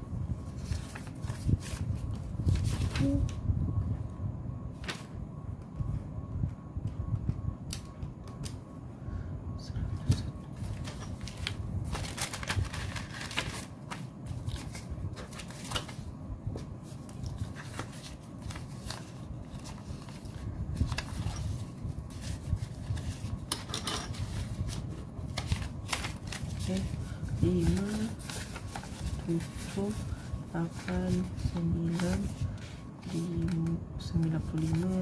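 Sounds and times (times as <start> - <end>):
banknotes rustling and flicking: 0.4 - 3.4, 10.0 - 35.0.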